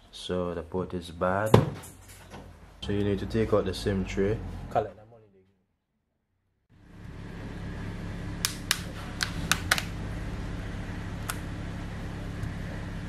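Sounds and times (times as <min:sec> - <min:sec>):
steady low hum: 0:06.7 - 0:13.0.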